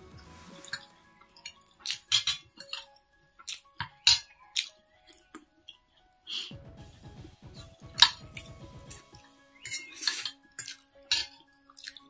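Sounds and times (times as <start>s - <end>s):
wet chewing sounds: 9.2s - 12.0s.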